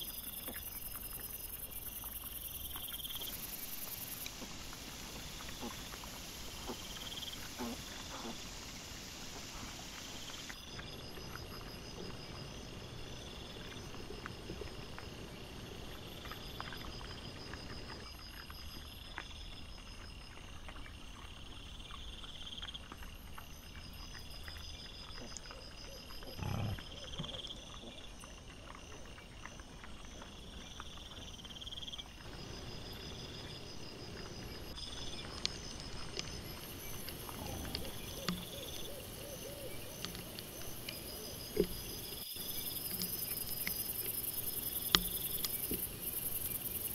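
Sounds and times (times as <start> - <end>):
insects chirping: 0.0 - 46.9
wild boar grunt: 25.1 - 28.1, 36.8 - 40.0.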